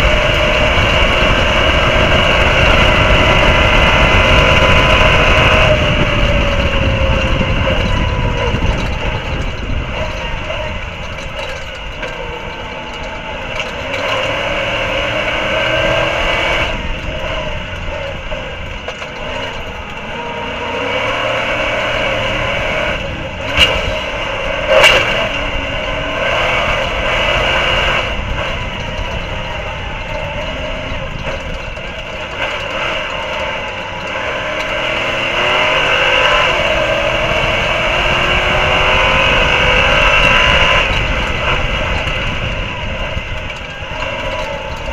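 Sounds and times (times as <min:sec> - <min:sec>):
road and wind noise: 0:00.0 - 0:44.9
truck engines racing: 0:00.0 - 0:44.9.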